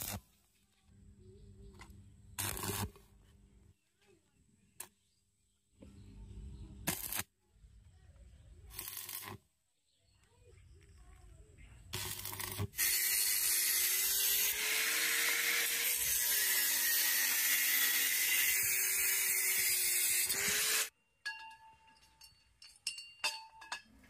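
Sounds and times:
power tool grinding metal: 12.0s - 20.9s.

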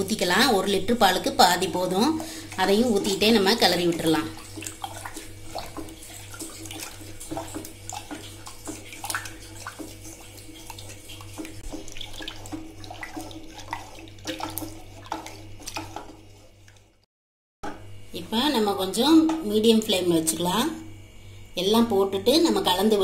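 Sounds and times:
liquid swishing in a pan: 0.0s - 17.1s.

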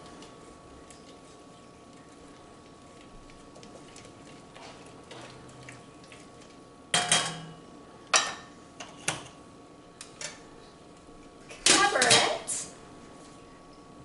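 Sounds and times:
metallic clanks of cookware: 7.0s - 7.5s.

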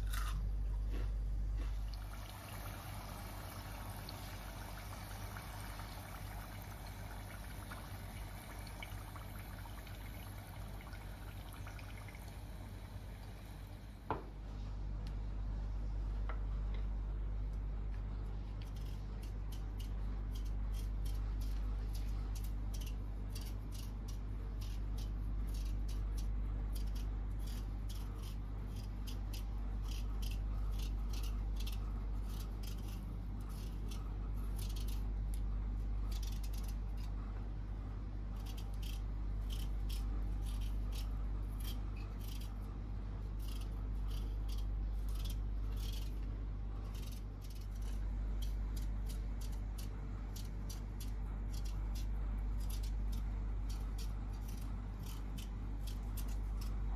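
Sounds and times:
steady low hum: 0.0s - 56.9s
knife scraping potato skin: 18.5s - 37.2s, 38.2s - 56.9s.

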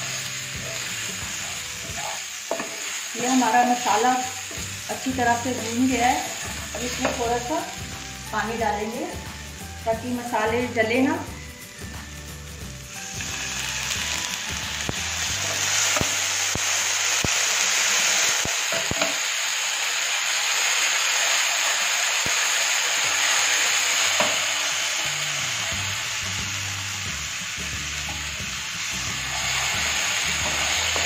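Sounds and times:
paste sizzling in oil: 0.0s - 31.0s
spatula tapping pan: 1.1s - 2.8s.

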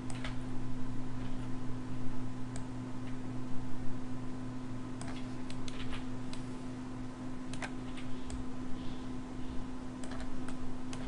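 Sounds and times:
computer mouse clicks: 0.0s - 0.4s, 5.0s - 6.5s, 7.5s - 8.4s, 10.0s - 11.0s
low electrical hum: 0.0s - 11.0s
keyboard clicks: 10.0s - 11.0s.

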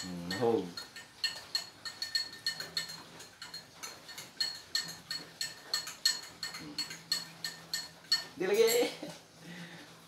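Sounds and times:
spoon clinking against glass: 0.0s - 9.0s.

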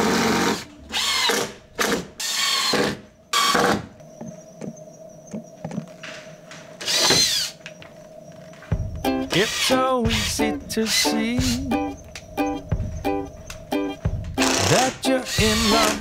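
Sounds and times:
cordless drill motor whine: 0.0s - 3.8s, 6.8s - 7.9s, 14.4s - 16.0s.

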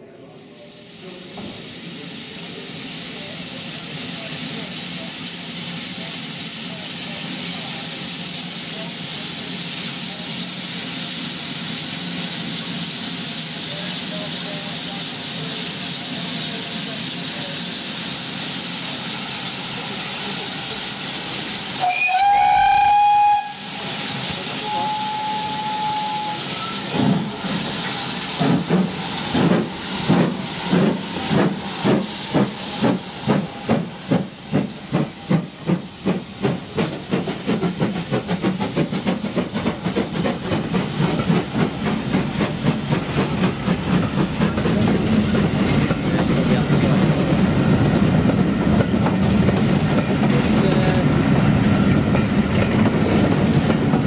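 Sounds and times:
steam hissing: 0.0s - 54.0s
steam locomotive exhaust beats: 1.0s - 54.0s
faint steam whistle: 21.8s - 27.0s
loud steam whistle: 21.8s - 27.0s.

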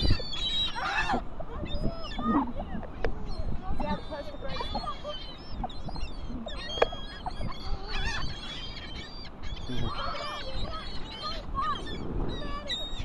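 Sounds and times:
gulls calling: 0.0s - 13.0s.

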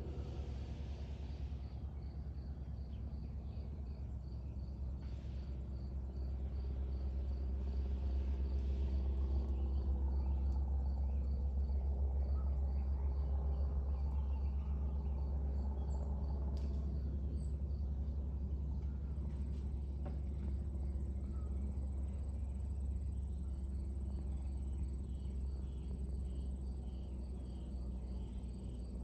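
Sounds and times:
jet airliner rumble: 0.0s - 29.0s
insect chirping: 21.2s - 29.0s.

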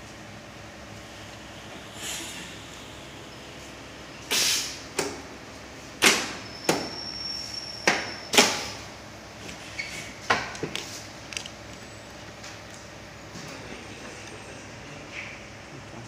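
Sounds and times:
air hisses and clacks: 1.8s - 3.0s, 3.6s - 5.2s.

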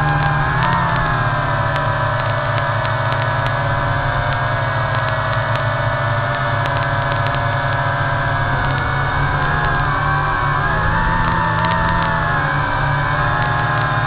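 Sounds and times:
quadcopter propellers whining: 0.0s - 14.0s.

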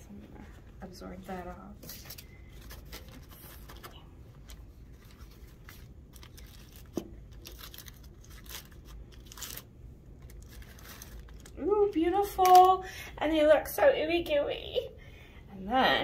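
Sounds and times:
aluminium foil crinkling: 1.8s - 12.9s.

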